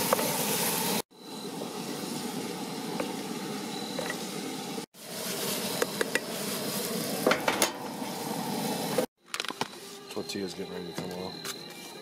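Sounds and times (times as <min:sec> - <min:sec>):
meat sizzling in a skillet: 0:00.0 - 0:09.1.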